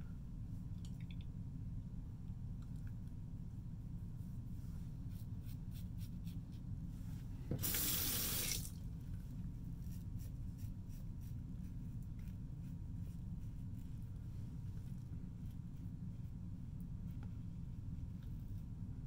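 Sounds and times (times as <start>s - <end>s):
tap water splashing into basin: 7.5s - 8.8s.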